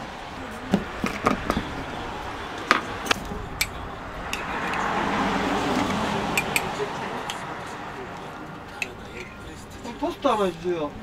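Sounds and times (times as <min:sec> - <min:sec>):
spoon and glass jar clinking: 0:08.8 - 0:09.6.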